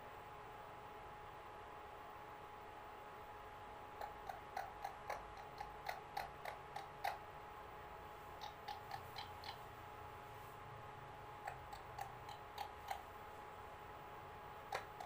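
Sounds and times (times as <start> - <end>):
parakeet clicking: 4.0 - 7.2, 8.4 - 9.6, 11.4 - 13.1, 14.7 - 15.0.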